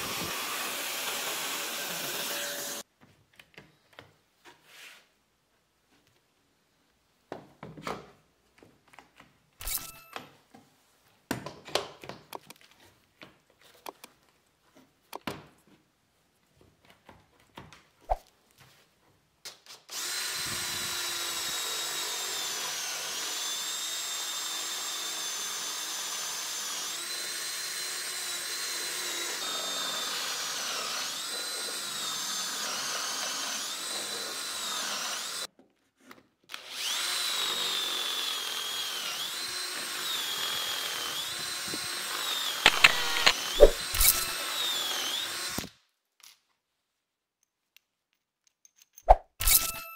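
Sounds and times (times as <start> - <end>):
cordless drill whining into wood: 0.0 - 2.8, 9.6 - 10.2, 19.9 - 35.5, 36.5 - 45.8, 49.4 - 49.9.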